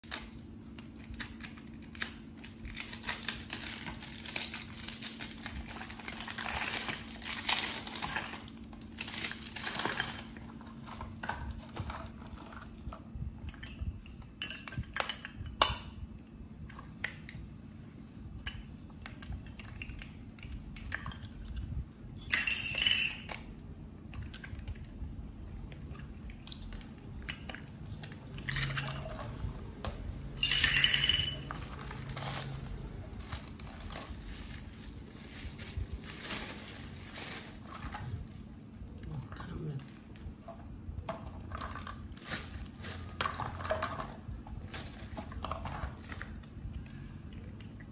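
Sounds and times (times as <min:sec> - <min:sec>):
steady low hum: 0:00.0 - 0:47.9
small hard objects clinking: 0:01.1 - 0:12.8, 0:22.2 - 0:23.4, 0:30.4 - 0:38.5, 0:41.3 - 0:46.5.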